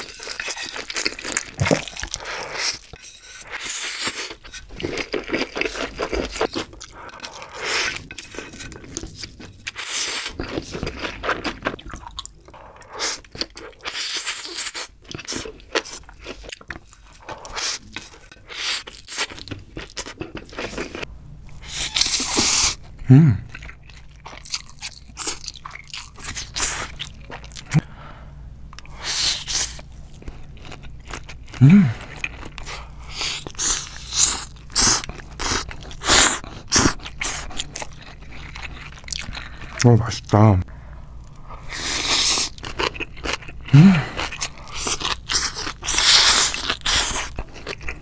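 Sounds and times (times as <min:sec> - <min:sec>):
wet chewing: 0:00.0 - 0:21.1, 0:28.7 - 0:39.9
crunchy bites: 0:01.1 - 0:02.1.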